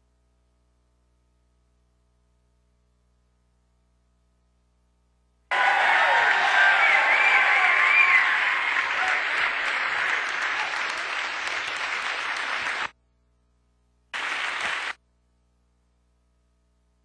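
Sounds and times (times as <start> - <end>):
audience applauding: 5.5 - 12.9, 14.2 - 15.0.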